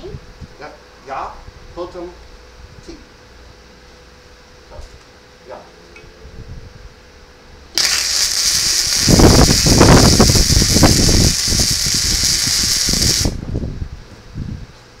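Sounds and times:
welding arc crackling: 0:07.8 - 0:13.4.

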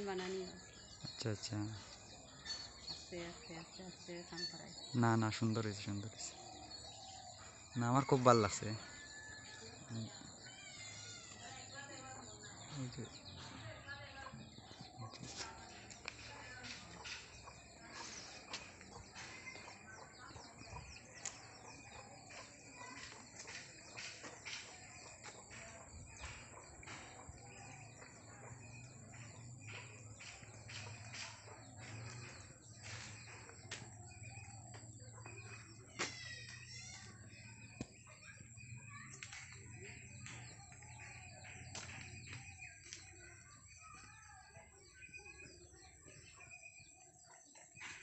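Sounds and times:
bird chirps and calls: 0:00.0 - 0:48.0.

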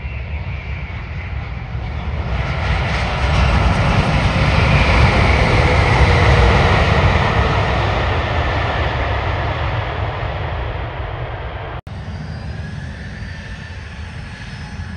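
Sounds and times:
jet engines roaring: 0:00.0 - 0:14.9
faint high engine whine: 0:11.5 - 0:14.9.

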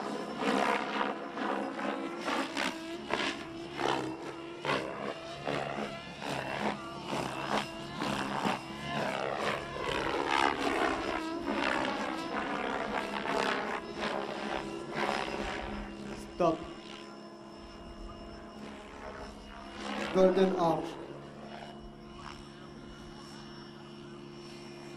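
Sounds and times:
helicopter rotor blades whooshing: 0:00.0 - 0:24.9
motor whine sliding in pitch: 0:00.0 - 0:24.9.

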